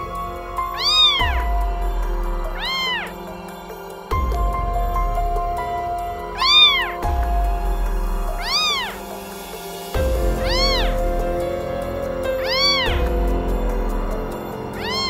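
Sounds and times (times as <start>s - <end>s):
background music: 0.0s - 15.0s
cat meowing: 0.7s - 1.4s, 2.6s - 3.1s, 6.4s - 7.0s, 8.4s - 9.0s, 10.4s - 11.0s, 12.4s - 13.0s, 14.8s - 15.0s.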